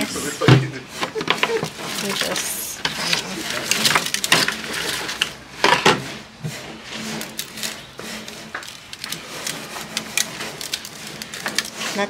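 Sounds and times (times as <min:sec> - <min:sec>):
foil pan crinkling: 0:00.5 - 0:12.0.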